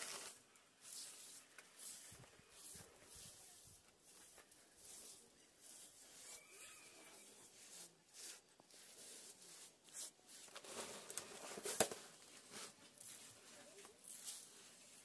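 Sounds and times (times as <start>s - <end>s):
hand broom sweeping grains: 0.0s - 11.8s, 12.4s - 15.0s.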